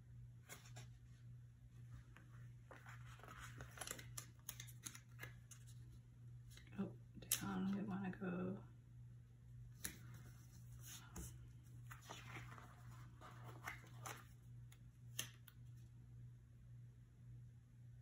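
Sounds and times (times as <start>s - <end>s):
paper sticker sheets rustling: 2.6s - 6.0s, 9.8s - 14.4s.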